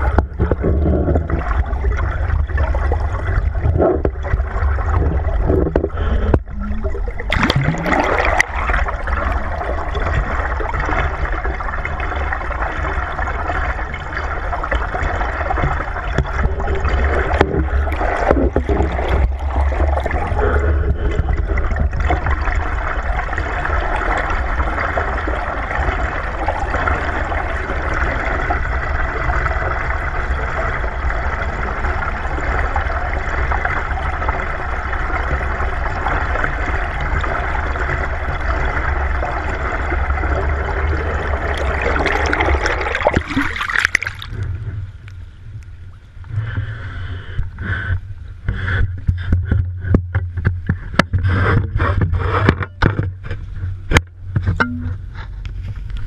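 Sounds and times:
low rumble: 0.0s - 48.4s
underwater gurgling and rushing: 0.0s - 56.0s
pole knocks: 54.4s - 55.1s.

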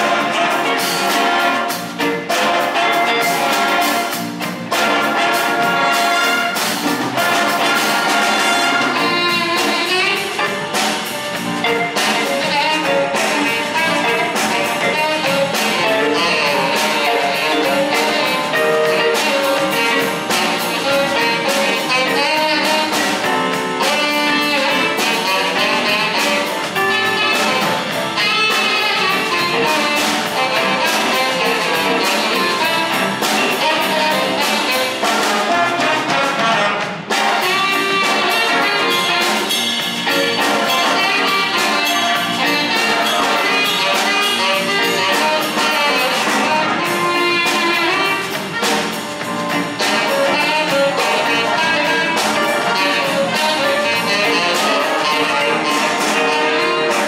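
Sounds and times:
big band horns: 0.0s - 57.0s
drum beat: 0.0s - 57.0s.

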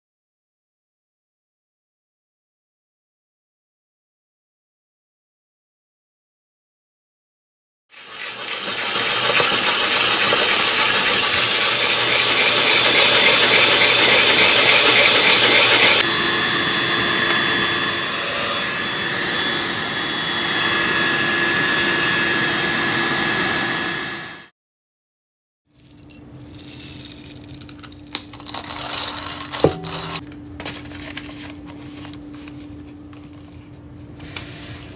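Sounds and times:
coffee roaster air rush: 7.9s - 24.5s, 28.4s - 34.9s.

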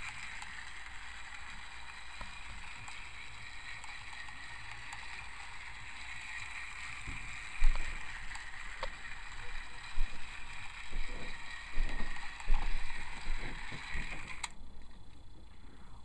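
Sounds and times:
toy train motor whirring: 0.0s - 14.6s.

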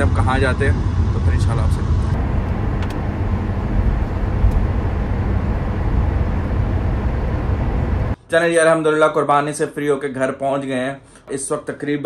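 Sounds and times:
car cabin road rumble: 1.6s - 8.2s.

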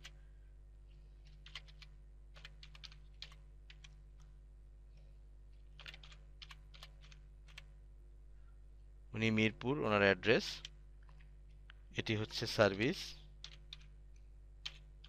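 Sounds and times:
faint computer keyboard typing: 0.0s - 0.2s, 0.9s - 4.3s, 5.5s - 7.8s, 10.4s - 11.8s, 12.4s - 15.0s.

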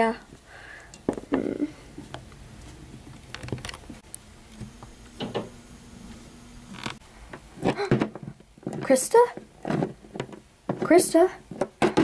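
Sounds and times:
soft rustle: 1.7s - 4.0s.

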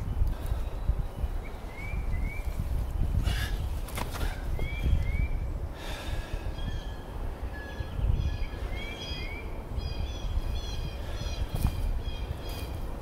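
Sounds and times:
small birds chirping: 0.0s - 13.0s
person breathing heavily: 3.2s - 4.5s, 5.6s - 6.6s.

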